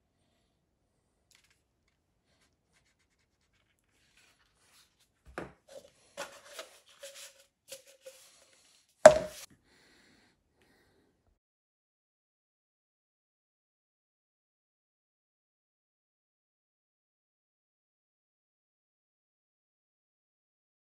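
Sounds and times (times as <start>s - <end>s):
leather rubbing on plastic cup: 5.7s - 9.5s
cup knocking on cutting mat: 9.1s - 9.4s.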